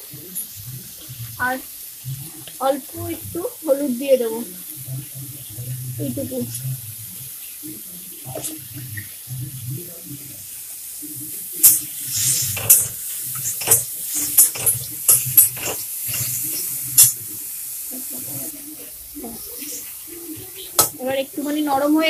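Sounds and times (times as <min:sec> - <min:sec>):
faint sizzle: 0:00.0 - 0:22.0
steel spatula scraping and clinking: 0:11.6 - 0:16.4.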